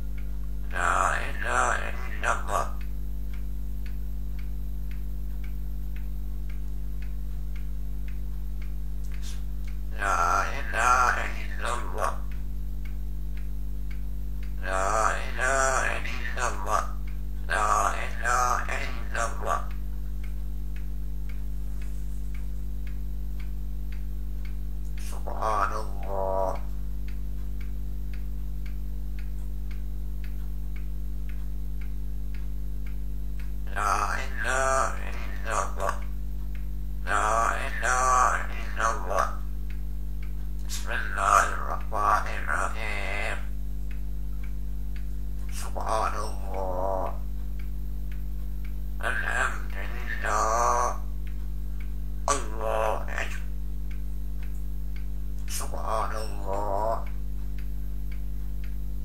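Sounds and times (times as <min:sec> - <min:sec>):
person speaking: 0:00.0 - 0:02.9, 0:09.0 - 0:12.4, 0:14.4 - 0:20.3, 0:24.8 - 0:27.2, 0:33.7 - 0:36.2, 0:37.0 - 0:39.6, 0:40.6 - 0:47.7, 0:49.0 - 0:51.4, 0:52.2 - 0:57.2
clock ticking: 0:00.0 - 0:09.9
low hum: 0:00.0 - 0:59.0.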